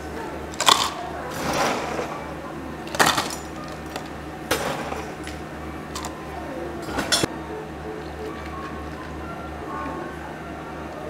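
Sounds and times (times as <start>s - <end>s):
ice cubes clattering into cups: 0.5s - 2.2s, 2.8s - 6.2s.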